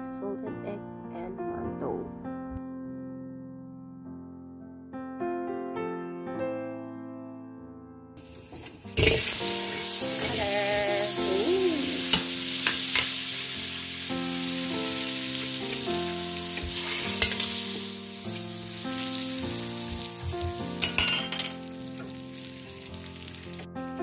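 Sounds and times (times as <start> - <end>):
butter sizzling in wok: 8.2 - 24.0.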